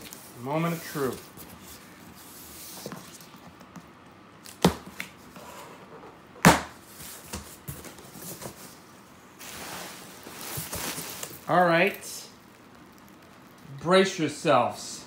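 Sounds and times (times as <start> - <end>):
bubble wrap rustling: 0.0 - 3.3, 6.8 - 14.3
cardboard flaps tapping and scraping: 10.3 - 11.4.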